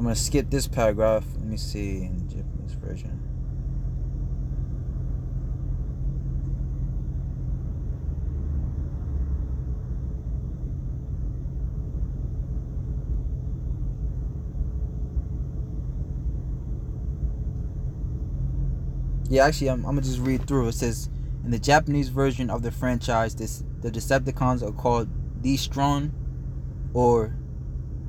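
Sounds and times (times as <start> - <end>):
faint steady hum: 0.0 - 28.0
low background rumble: 0.0 - 28.0.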